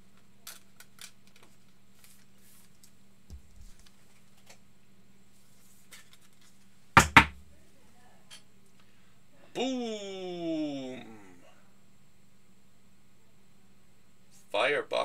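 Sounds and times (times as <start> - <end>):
faint steady hum: 0.0 - 15.0
cards and holders clicking and rustling: 0.1 - 3.0, 5.9 - 6.7
sharp knocks: 7.0 - 7.4.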